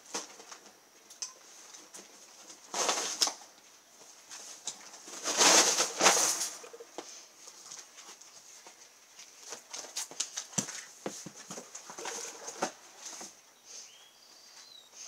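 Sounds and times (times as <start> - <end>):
cardboard scraping and rustling: 4.4 - 6.8, 9.4 - 13.4.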